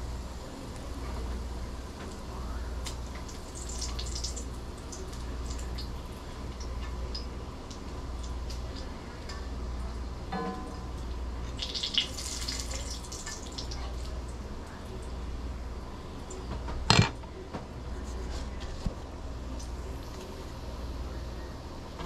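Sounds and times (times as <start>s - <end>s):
bacon sizzling in a frying pan: 2.7s - 8.7s, 11.2s - 13.9s
metal clank: 10.3s - 10.8s.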